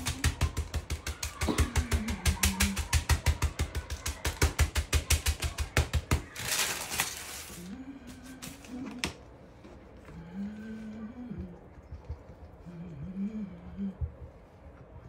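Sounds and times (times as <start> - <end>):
hands slapping dough: 0.0 - 6.7
pastry sheet rustling: 2.2 - 8.9.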